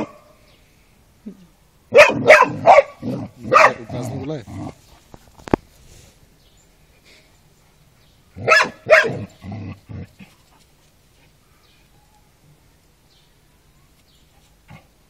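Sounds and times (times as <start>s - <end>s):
puppy barking: 1.9s - 3.9s, 8.4s - 9.3s.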